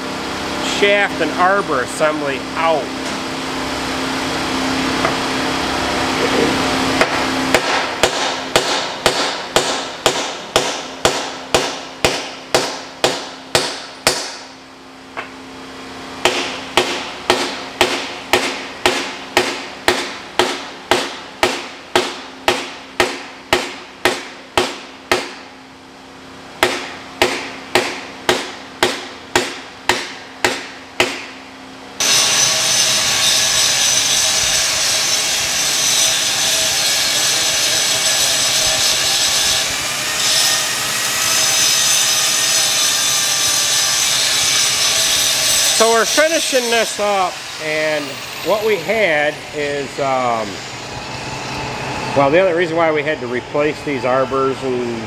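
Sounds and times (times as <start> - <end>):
hammer striking metal: 7.0 - 14.5, 16.2 - 25.5, 26.6 - 31.4.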